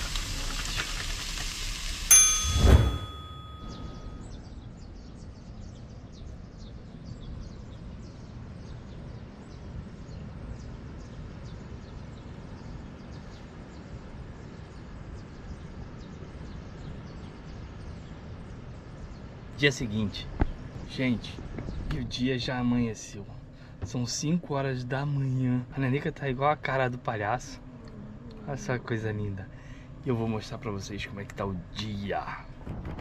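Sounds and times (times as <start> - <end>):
chime ringing: 2.1 - 4.2
birds chirping: 2.1 - 31.2.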